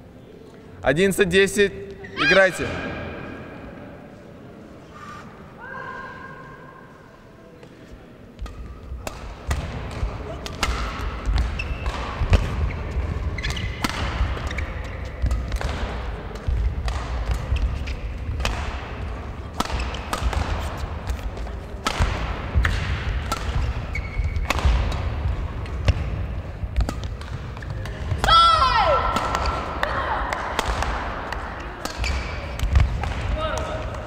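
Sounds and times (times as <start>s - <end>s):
rackets striking shuttlecock: 8.4s - 34.0s
shoe squeaks: 11.5s - 12.0s, 12.6s - 15.2s, 23.5s - 24.5s.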